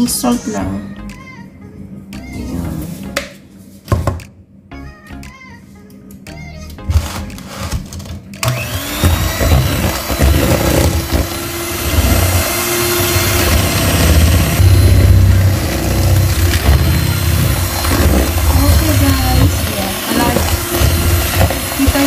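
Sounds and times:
electric hand mixer whirring: 8.4s - 22.0s.

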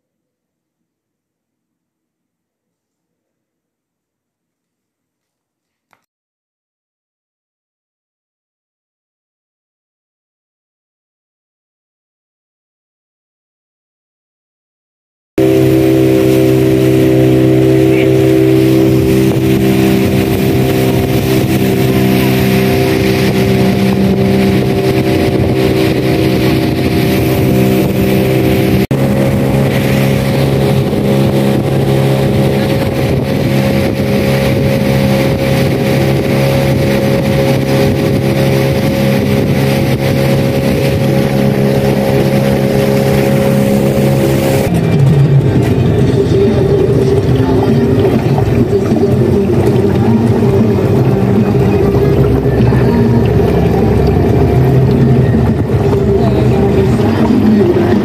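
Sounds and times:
motorboat engine droning: 15.4s - 58.0s
water and wind rushing: 15.4s - 58.0s.

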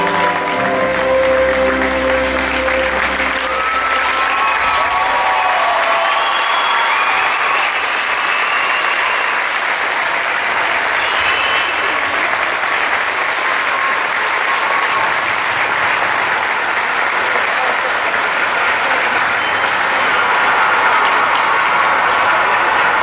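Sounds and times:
voices calling out and cheering: 0.0s - 9.7s
audience applauding: 0.0s - 23.0s.

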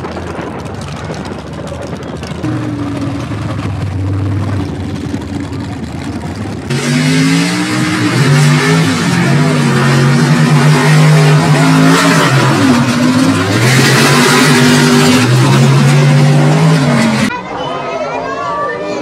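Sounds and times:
trucks engines at full throttle: 0.0s - 19.0s.

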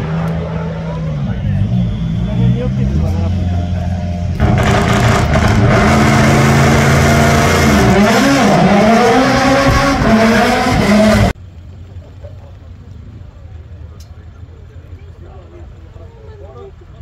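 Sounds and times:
car engine revving high: 0.0s - 11.4s.

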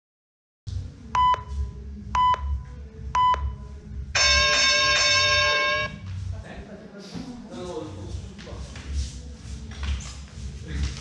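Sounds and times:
countdown timer short beeps: 1.2s - 1.5s, 2.2s - 2.6s, 3.2s - 3.6s
timer long beep: 4.2s - 6.0s.

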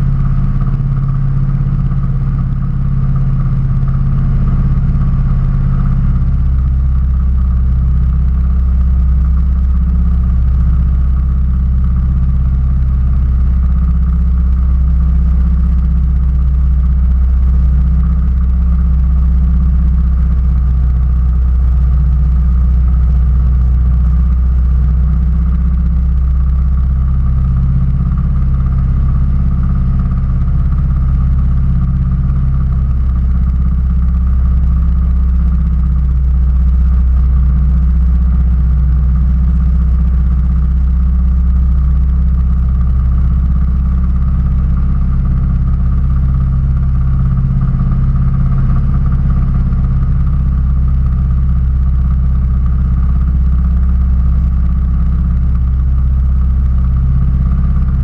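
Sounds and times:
engine idling: 0.0s - 58.0s.

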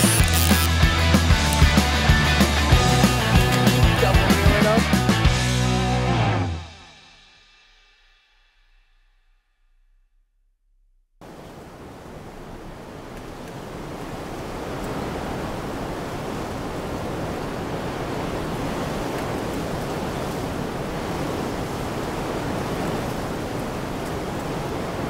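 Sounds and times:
rushing water: 0.0s - 5.4s, 11.2s - 25.0s
wind: 11.2s - 25.0s.

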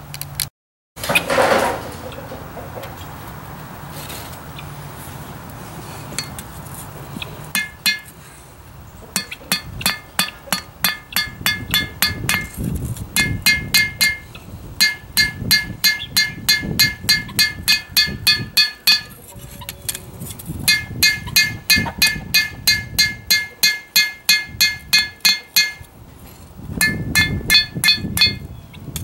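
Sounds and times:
hammer striking steel on anvil: 6.2s - 6.4s, 7.5s - 8.2s, 9.1s - 12.6s, 13.2s - 19.2s, 20.7s - 25.9s, 26.8s - 28.5s.

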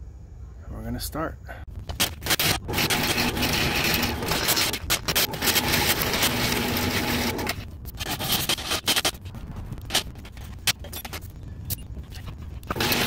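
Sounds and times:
drain-cleaning machine running: 2.7s - 7.6s, 12.7s - 13.0s.

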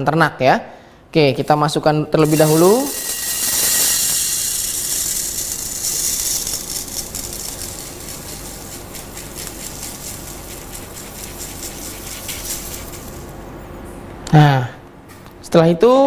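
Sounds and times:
rice grains pouring into plastic: 2.2s - 11.0s.

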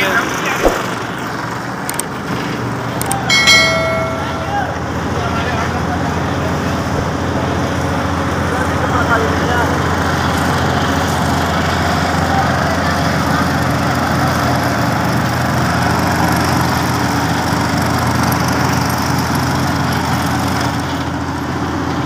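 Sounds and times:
asphalt paver engine running: 4.9s - 22.0s.

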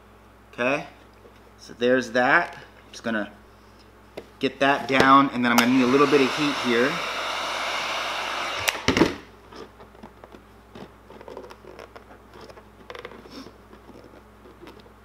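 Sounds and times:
heat gun switch clicks: 5.5s - 5.9s, 8.6s - 9.0s
heat gun blowing air: 5.5s - 9.2s
fingers rubbing and tapping: 9.6s - 14.9s.

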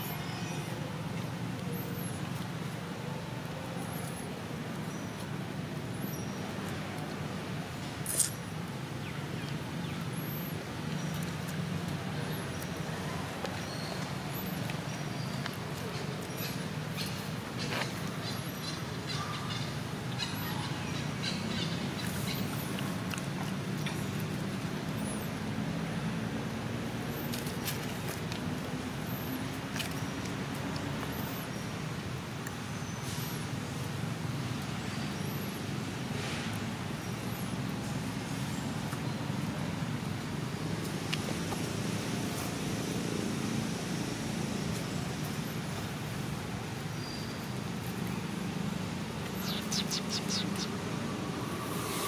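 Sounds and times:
small birds chirping: 49.2s - 52.0s.

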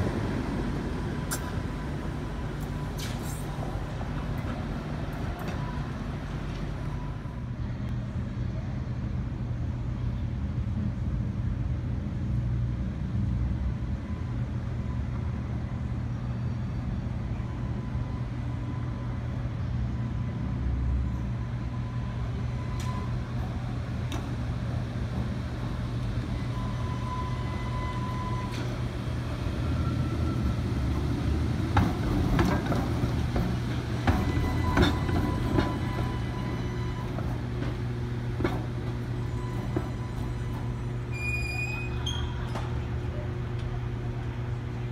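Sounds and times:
streetcar rumbling past: 0.0s - 44.9s
wheels clicking over track joints: 30.9s - 40.9s.

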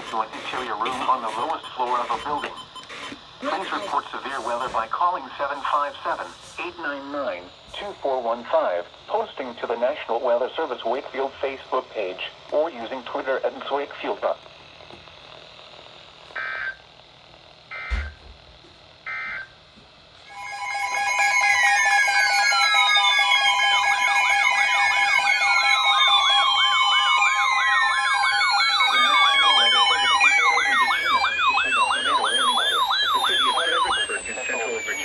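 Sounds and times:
weather radio broadcast: 0.0s - 14.4s, 28.7s - 35.0s
short data-tone bursts: 0.4s - 3.9s, 25.5s - 35.0s
warbling siren tones: 16.4s - 16.8s, 20.3s - 35.0s
steady alert tones: 20.3s - 35.0s.

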